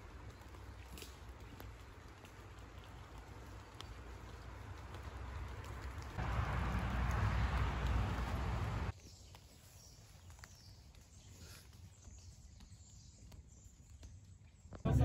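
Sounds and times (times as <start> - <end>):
rain or wind rushing: 4.4 - 8.9.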